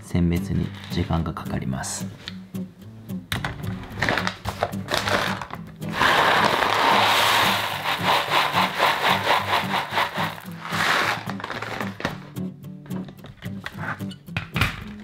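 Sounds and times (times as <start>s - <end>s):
coffee beans poured into mesh tray: 5.0s - 12.1s.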